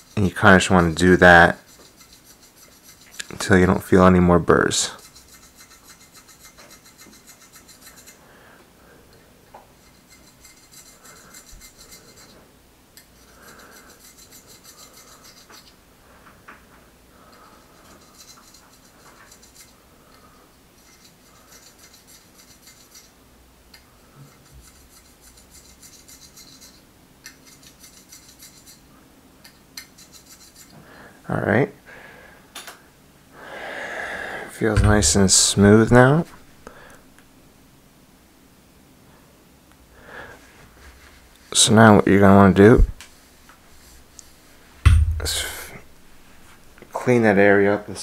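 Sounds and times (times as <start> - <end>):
razor blade scraping metal tube: 0.0 - 3.8, 4.8 - 8.2, 9.8 - 12.4, 13.0 - 15.8, 17.2 - 23.2, 24.2 - 28.9, 29.5 - 30.8.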